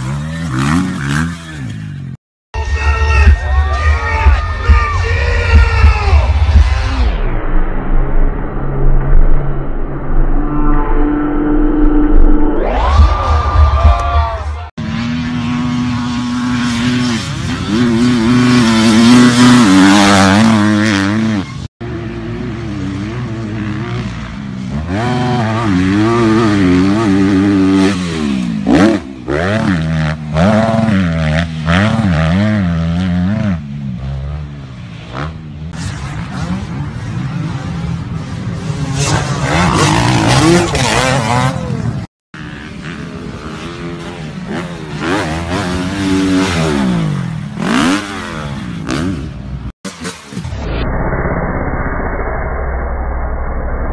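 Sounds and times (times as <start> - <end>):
dirt bike engines revving: 0.0 - 7.2, 11.0 - 50.4.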